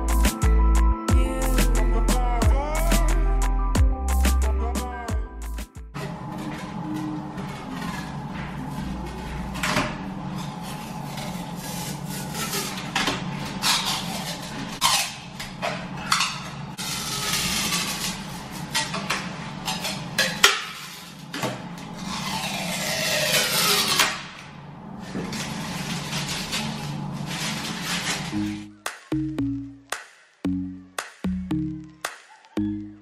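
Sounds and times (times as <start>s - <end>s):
plastic film peeling and crackling: 16.8s - 18.8s, 25.3s - 28.7s.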